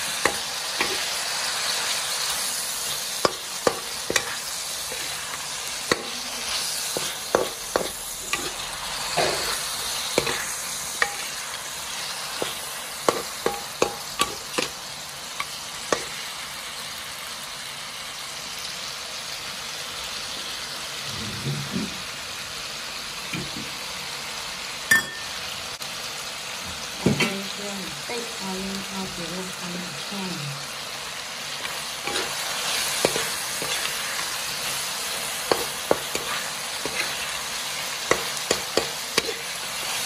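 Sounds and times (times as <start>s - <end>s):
meat sizzling in oil: 0.0s - 40.0s
metal spatula clinking on pan: 24.9s - 25.4s.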